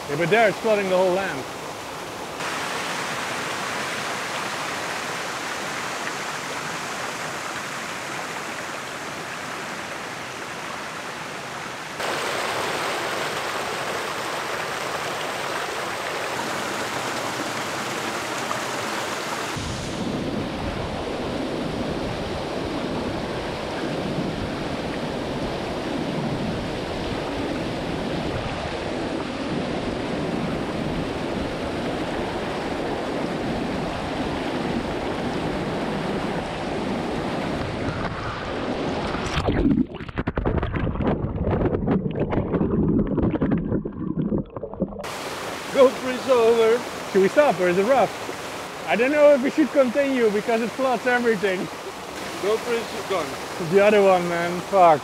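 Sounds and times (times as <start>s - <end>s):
water rushing over rocks: 0.0s - 55.0s
water gushing onto rocks: 12.0s - 19.6s, 39.1s - 55.0s.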